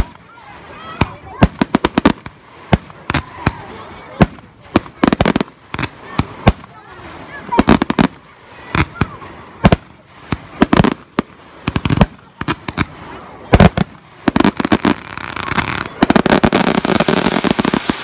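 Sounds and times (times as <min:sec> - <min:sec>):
fireworks bangs and crackling: 0:00.0 - 0:18.0.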